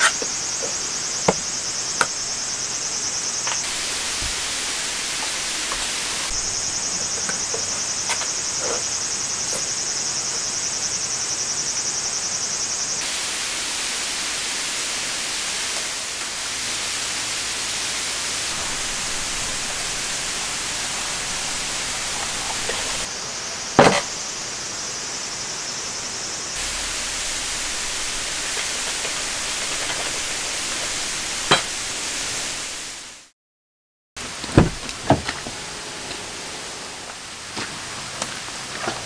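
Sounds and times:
rain falling on a tent: 0:03.4 - 0:07.8, 0:13.0 - 0:23.1, 0:26.6 - 0:33.2, 0:37.1 - 0:39.0.

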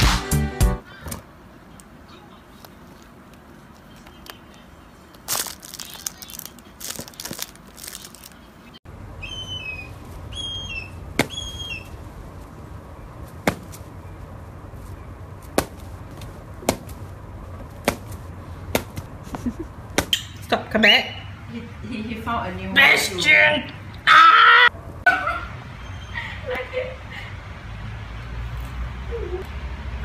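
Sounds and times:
small birds chirping: 0:08.1 - 0:12.1.

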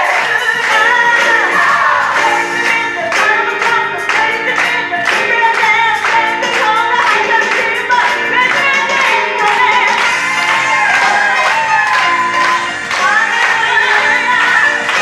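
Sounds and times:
gospel choir singing: 0:00.0 - 0:02.5
hands clapping in rhythm: 0:00.0 - 0:15.0.

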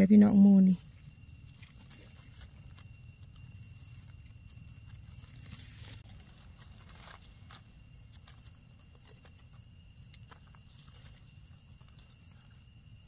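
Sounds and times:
twigs snapping and clicking: 0:01.4 - 0:12.4
footsteps rustling through leaf litter: 0:04.7 - 0:08.4.

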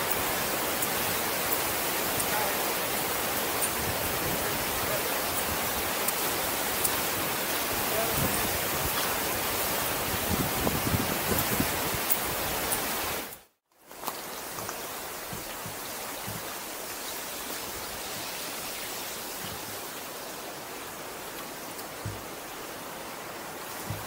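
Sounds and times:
wind buffeting microphone: 0:00.0 - 0:13.0
fast-flowing river water rushing: 0:00.0 - 0:13.3.

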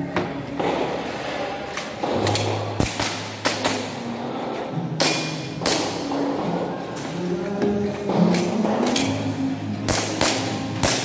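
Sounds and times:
background music: 0:00.0 - 0:11.0
airsoft pistol shots: 0:02.0 - 0:03.9, 0:09.9 - 0:11.0.

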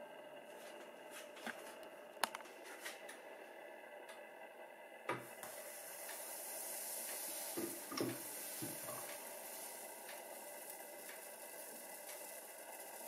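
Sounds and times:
batter sizzling in waffle iron: 0:05.3 - 0:13.0.

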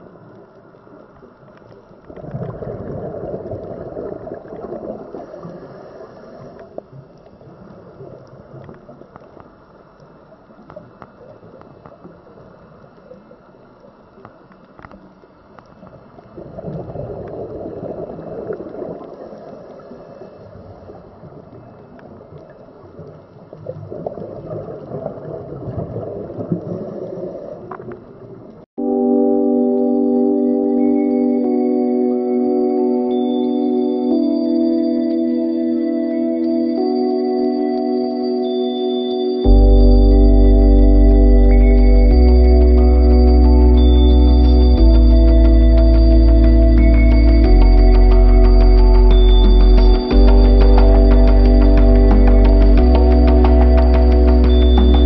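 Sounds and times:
diver's bubbles gurgling: 0:02.0 - 0:09.2, 0:15.8 - 0:20.0, 0:20.6 - 0:28.6
organ-like music: 0:28.8 - 0:55.0.

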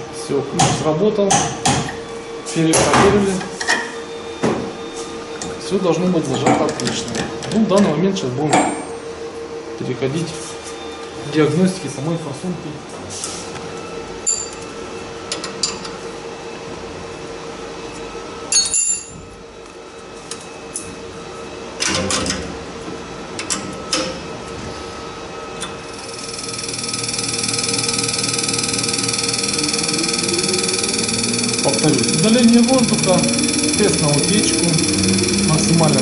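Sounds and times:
steady hum: 0:24.3 - 0:36.0
test bench pump whining: 0:25.6 - 0:36.0.

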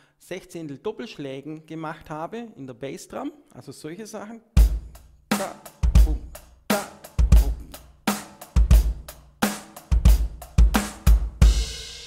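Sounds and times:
bass drum double strokes: 0:09.9 - 0:12.0.

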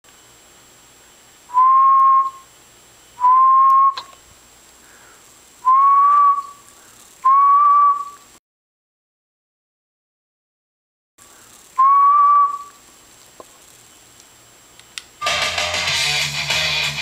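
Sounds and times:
whistled notes: 0:01.5 - 0:02.5, 0:03.2 - 0:04.1, 0:05.6 - 0:06.6, 0:07.2 - 0:08.3, 0:11.8 - 0:12.8.

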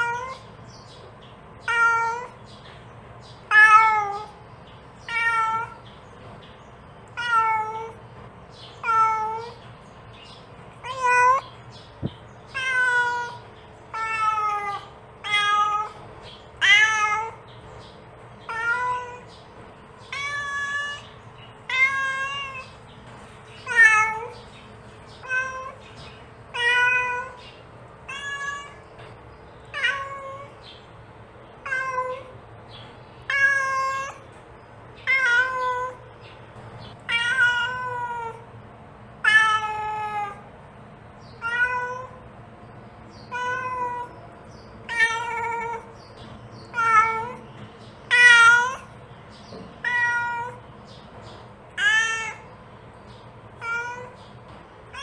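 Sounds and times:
cat meowing: 0:00.0 - 0:00.6, 0:01.6 - 0:02.4, 0:03.5 - 0:04.4, 0:05.0 - 0:05.8, 0:07.1 - 0:08.0, 0:08.8 - 0:09.6, 0:10.8 - 0:11.4, 0:12.5 - 0:16.0, 0:16.6 - 0:17.5, 0:18.4 - 0:19.4, 0:20.1 - 0:22.8, 0:23.6 - 0:24.4, 0:25.2 - 0:25.9, 0:26.5 - 0:27.4, 0:28.0 - 0:29.0, 0:29.7 - 0:30.6, 0:31.6 - 0:32.4, 0:33.2 - 0:34.3, 0:35.0 - 0:36.1, 0:37.0 - 0:38.5, 0:39.2 - 0:40.5, 0:41.4 - 0:42.2, 0:43.2 - 0:44.2, 0:44.8 - 0:46.0, 0:46.7 - 0:49.0, 0:49.8 - 0:50.6, 0:51.8 - 0:52.6, 0:53.6 - 0:54.3.

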